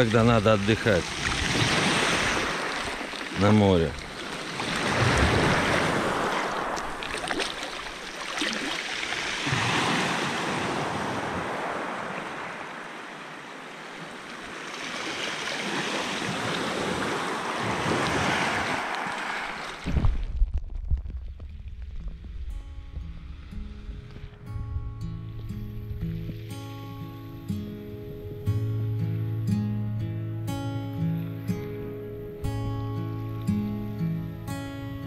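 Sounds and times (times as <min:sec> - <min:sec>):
waves washing over pebble beach: 0:00.0 - 0:13.3, 0:14.5 - 0:20.1.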